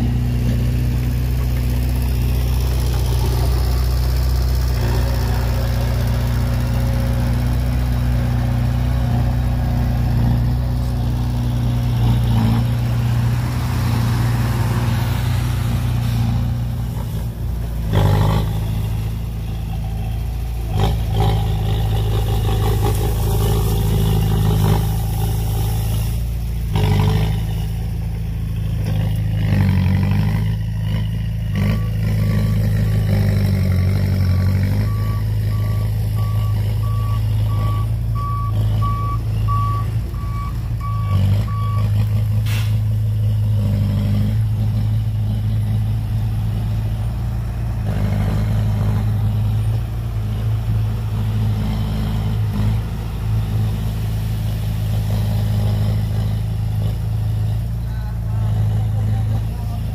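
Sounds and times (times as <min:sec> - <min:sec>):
heavy diesel machinery running: 0:00.0 - 0:59.9
reversing alarm beeping: 0:34.2 - 0:41.9.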